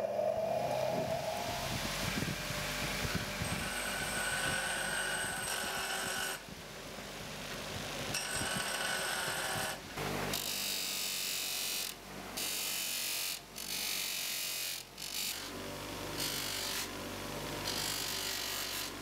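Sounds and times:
metal bar grinding on wheel: 0.0s - 6.4s.

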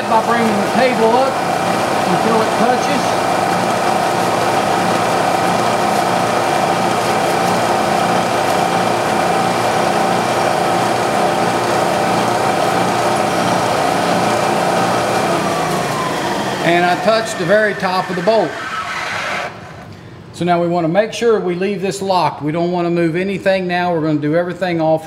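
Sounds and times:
milling machine whine: 0.0s - 19.9s.

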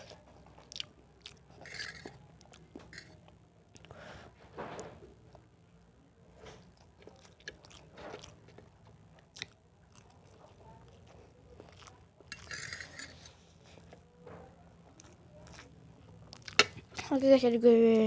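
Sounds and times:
person chewing food: 0.0s - 4.0s, 6.5s - 14.1s, 14.8s - 17.1s.

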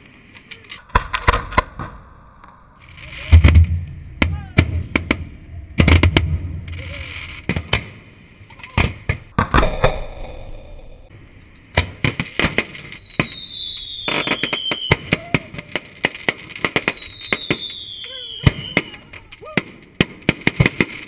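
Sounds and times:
fireworks bangs and crackles: 0.0s - 10.0s, 11.3s - 21.0s
firework whistle sliding down: 12.8s - 15.1s, 16.5s - 19.0s.

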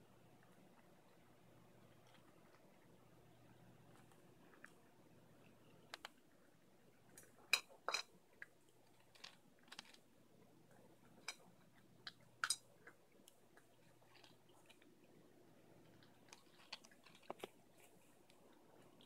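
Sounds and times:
cat crunching dry food: 5.6s - 10.5s, 11.1s - 19.0s.

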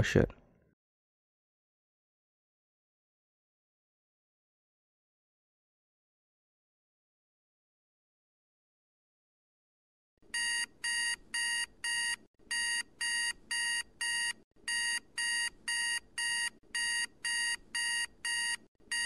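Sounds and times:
electronic alarm beeping: 10.4s - 19.0s.

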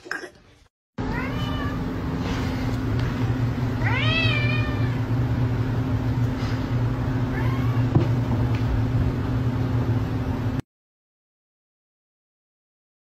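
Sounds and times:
steady low hum: 1.0s - 10.6s
cat meowing: 1.1s - 1.8s, 3.8s - 5.1s, 7.3s - 7.9s.

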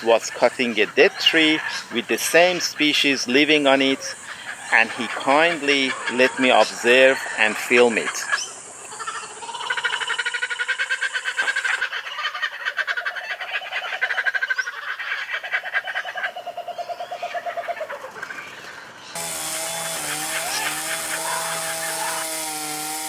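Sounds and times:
birds chattering: 0.0s - 22.9s
motor-like drone: 19.2s - 23.0s.

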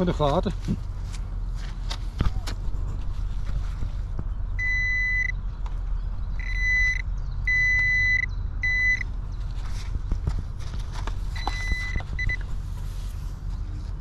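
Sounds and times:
low wind rumble: 0.0s - 14.0s
metal detector beeps: 4.6s - 5.4s, 6.4s - 9.1s, 11.4s - 12.4s.

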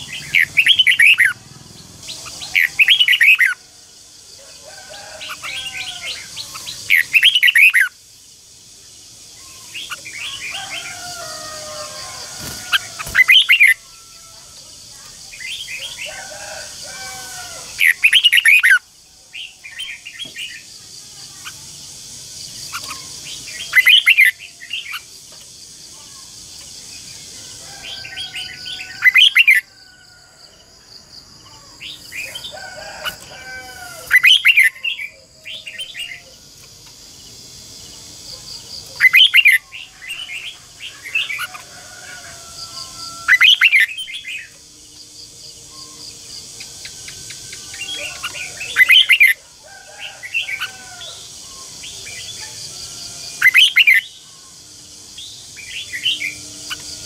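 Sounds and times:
bird singing warbled phrases: 0.0s - 29.7s, 31.4s - 57.0s.

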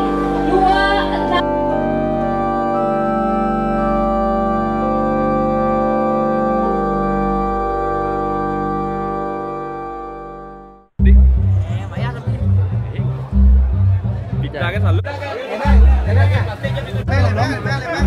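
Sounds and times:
slow sustained chords music: 0.0s - 10.9s.

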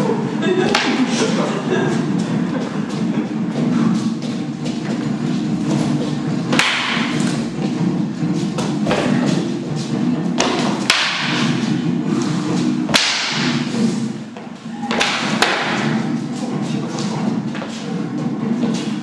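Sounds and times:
fighting sticks striking: 0.6s - 19.0s.

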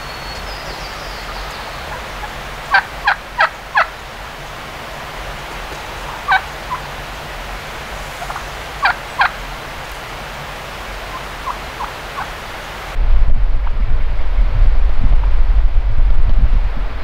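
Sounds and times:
turkey calling: 0.0s - 4.0s, 5.5s - 7.1s, 7.8s - 10.0s, 11.0s - 12.4s
background hiss: 0.0s - 13.0s.

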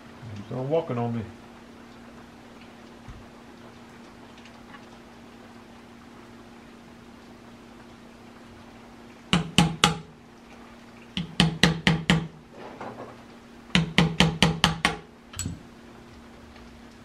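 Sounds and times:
hammer tapping metal: 9.4s - 10.1s, 11.2s - 12.3s, 13.8s - 15.6s.

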